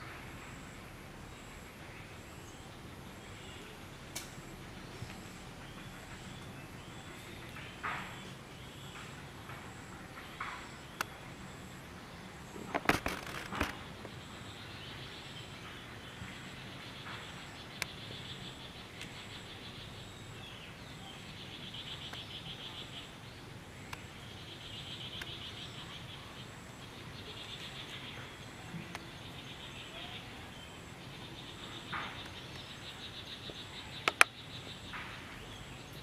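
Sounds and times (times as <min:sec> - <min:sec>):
steady low hiss: 0:00.0 - 0:36.0
sharp clicks: 0:34.0 - 0:34.4.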